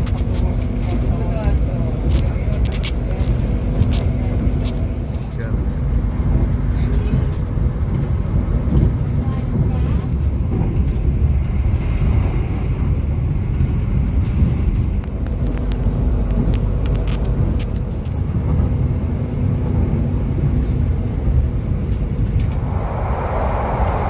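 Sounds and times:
train low rumble: 0.0s - 24.0s
rushing hiss in tunnel: 22.5s - 24.0s.

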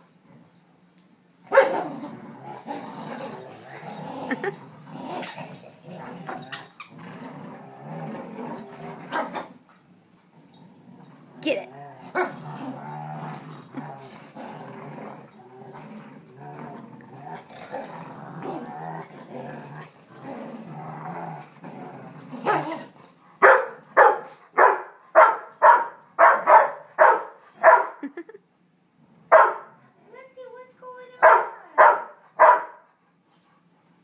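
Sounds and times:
dogs growling: 1.4s - 24.6s
dog barking loudly: 1.5s - 1.9s, 23.4s - 28.0s, 29.3s - 29.7s, 31.2s - 32.8s.

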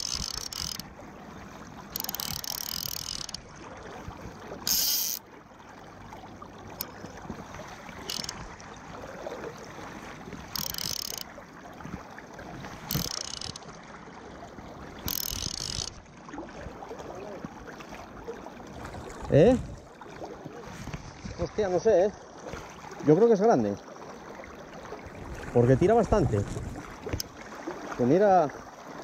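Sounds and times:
fishing reel ratchet buzzing: 0.0s - 0.9s, 1.9s - 3.4s, 4.7s - 5.2s, 8.0s - 8.4s, 10.5s - 11.3s, 12.9s - 13.6s, 15.0s - 16.0s.

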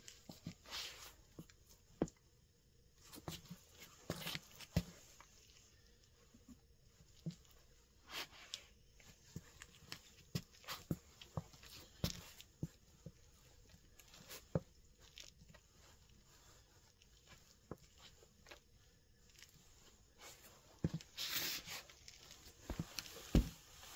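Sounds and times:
footsteps on hard floor: 20.8s - 21.6s, 22.2s - 23.9s.

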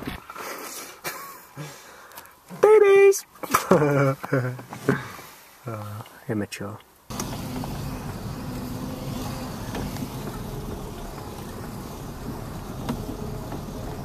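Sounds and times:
vehicle engine rumbling: 7.1s - 14.0s.

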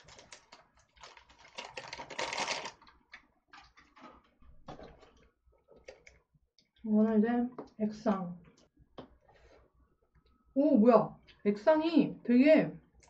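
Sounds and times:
plastic sachet crinkling and tearing: 0.0s - 3.2s.

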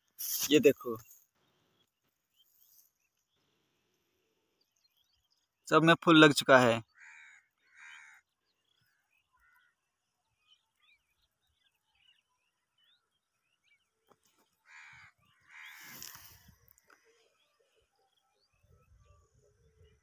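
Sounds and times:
soft bird chirps: 0.0s - 20.0s
faint bird calls: 6.8s - 20.0s.

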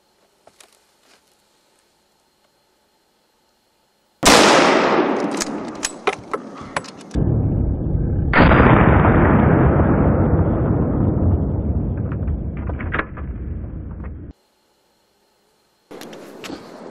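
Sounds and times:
rifle shot echoing: 4.2s - 6.5s, 8.4s - 10.3s.

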